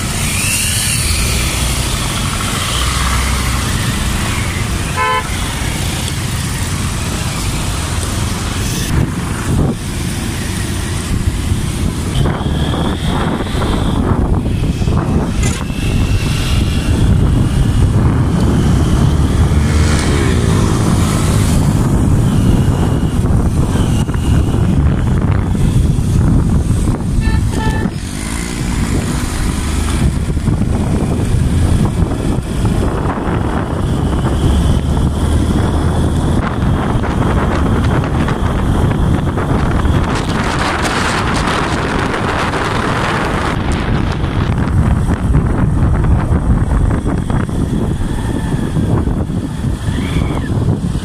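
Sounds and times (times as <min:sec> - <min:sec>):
motorcycle engine running: 0:00.0 - 0:51.0
wind and road noise: 0:00.0 - 0:51.0
horn beeps: 0:04.3 - 0:05.7, 0:12.0 - 0:14.2, 0:22.1 - 0:24.8, 0:27.2 - 0:28.0.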